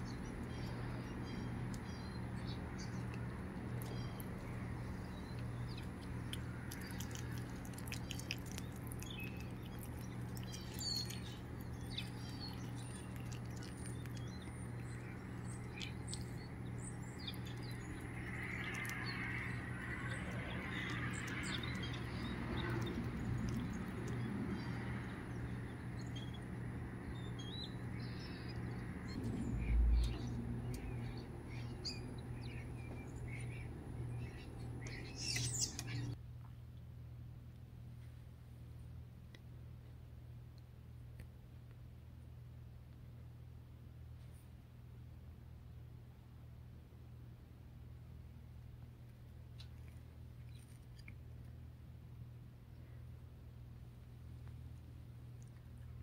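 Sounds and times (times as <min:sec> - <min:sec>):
small chirps: 0:00.0 - 0:36.2
steady low hum: 0:00.0 - 0:56.0.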